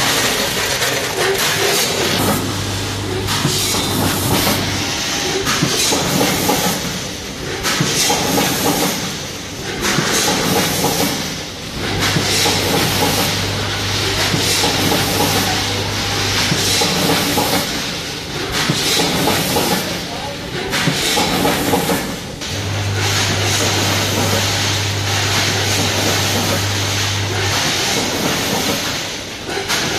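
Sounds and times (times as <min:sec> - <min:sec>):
machine clatter: 0:00.0 - 0:29.9
low motor hum: 0:22.4 - 0:28.5.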